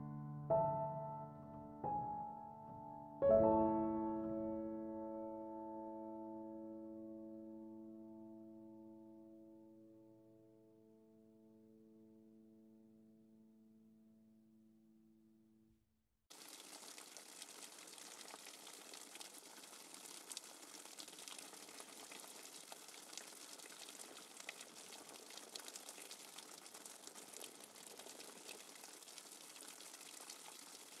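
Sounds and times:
rain falling: 0:16.3 - 0:31.0
raindrops ticking: 0:16.3 - 0:31.0.

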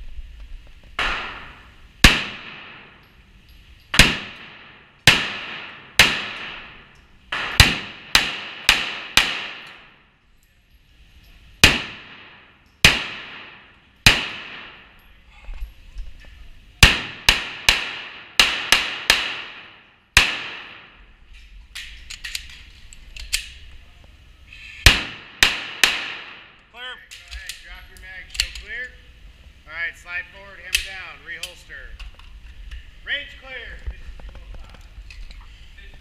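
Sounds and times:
faint gunshots: 0:01.0 - 0:02.9, 0:03.9 - 0:09.9, 0:11.6 - 0:14.9
handgun shots echoing: 0:01.0 - 0:03.0, 0:03.9 - 0:10.0, 0:11.6 - 0:14.9, 0:16.8 - 0:21.0, 0:24.9 - 0:26.6.

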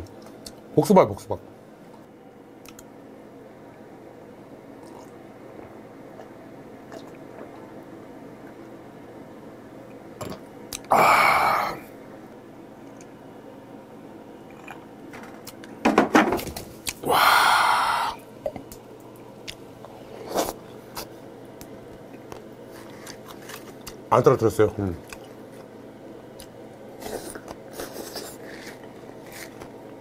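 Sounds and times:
man sighing: 0:10.9 - 0:11.9, 0:17.0 - 0:18.2.

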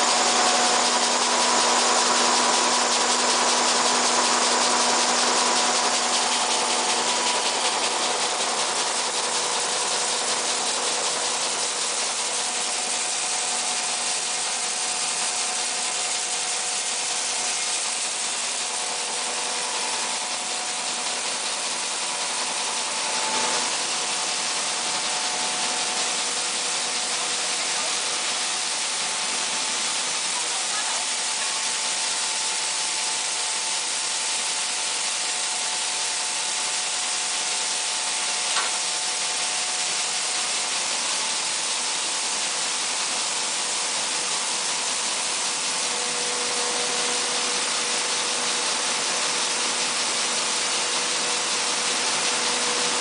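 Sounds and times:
machine hum: 0:00.0 - 0:53.0.

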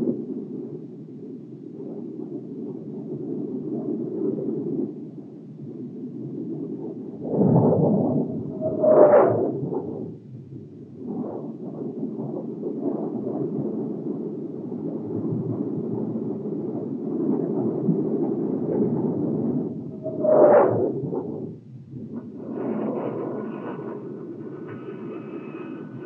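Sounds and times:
short rising whine: 0:07.2 - 0:10.0, 0:19.8 - 0:21.8
jet aircraft roar: 0:07.2 - 0:10.2, 0:18.7 - 0:26.0.

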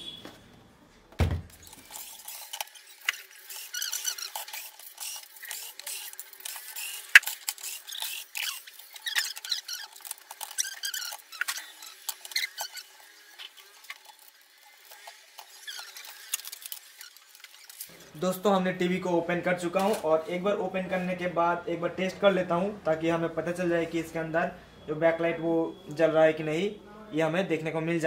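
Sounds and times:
screws squeaking: 0:01.6 - 0:18.0.

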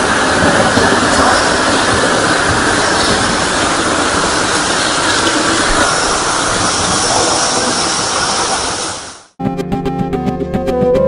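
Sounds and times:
waterfall rushing into rocky pool: 0:00.0 - 0:09.4.

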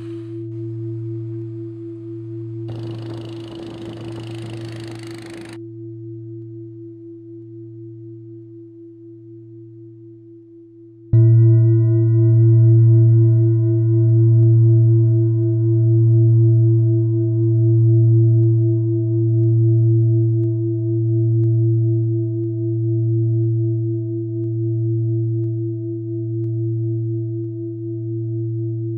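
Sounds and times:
ringing drone: 0:00.5 - 0:05.6.

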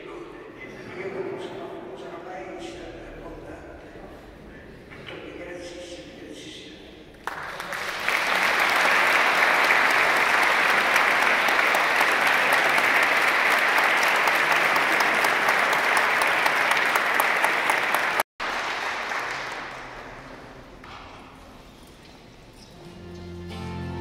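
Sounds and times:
crowd applauding: 0:07.2 - 0:20.6.

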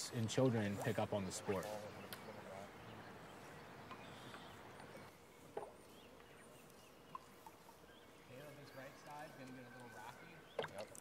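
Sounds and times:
faint river ambience: 0:00.0 - 0:11.0
high bird chirps: 0:01.6 - 0:05.2.

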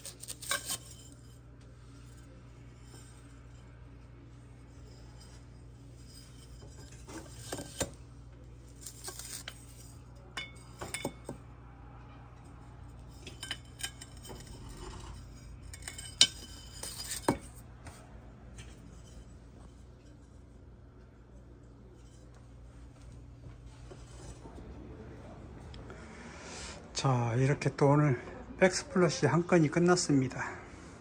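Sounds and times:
ceramic tiles clinking: 0:13.0 - 0:17.6.

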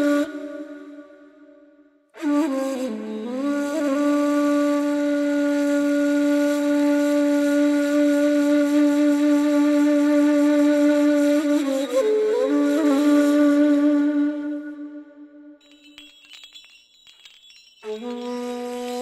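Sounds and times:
flute-like wind instrument note: 0:02.2 - 0:15.6.

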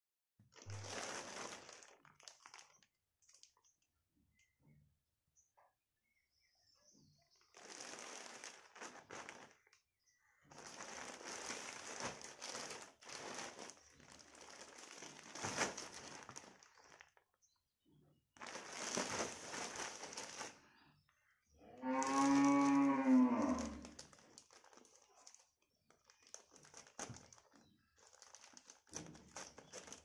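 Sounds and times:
plastic mailer bag crinkling: 0:00.6 - 0:03.5, 0:07.5 - 0:09.8, 0:10.5 - 0:17.4, 0:18.4 - 0:20.7, 0:21.8 - 0:30.0.

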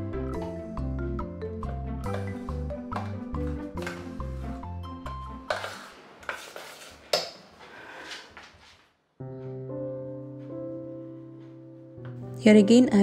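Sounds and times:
background music: 0:00.0 - 0:06.1, 0:09.2 - 0:13.0
metal spoon scraping saucepan: 0:05.5 - 0:06.9.

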